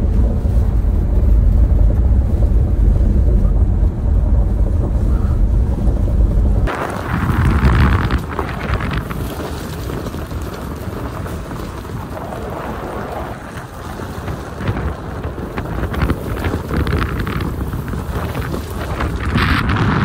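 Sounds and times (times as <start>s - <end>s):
vehicle low rumble: 0.0s - 20.0s
tyres crackling on gravel: 6.6s - 20.0s.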